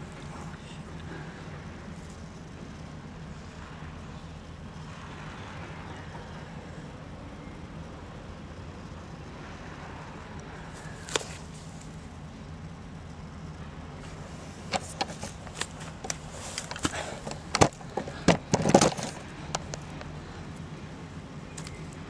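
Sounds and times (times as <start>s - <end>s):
low background hum: 0.0s - 22.0s
twigs and leaves snapping: 10.9s - 11.9s, 14.7s - 20.2s, 21.5s - 22.0s.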